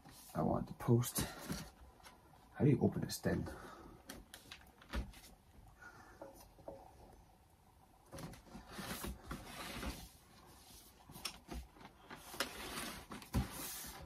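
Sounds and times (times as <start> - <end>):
cardboard box scraping and rustling: 8.6 - 10.2, 12.2 - 14.0.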